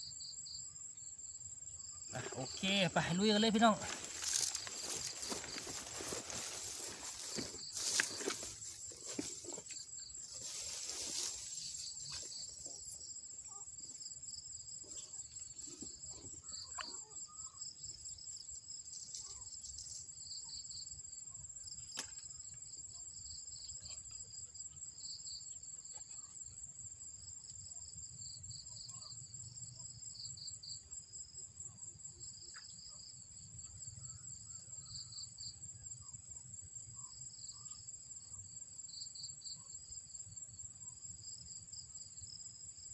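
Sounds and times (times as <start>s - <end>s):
insect high trill: 0.0s - 27.6s
pulsing insect chirp: 0.0s - 42.9s
rustling: 3.7s - 12.8s.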